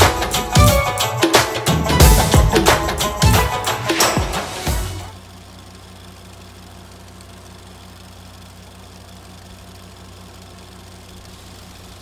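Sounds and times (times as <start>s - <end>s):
low pulsing mechanical hum: 5.1s - 12.0s.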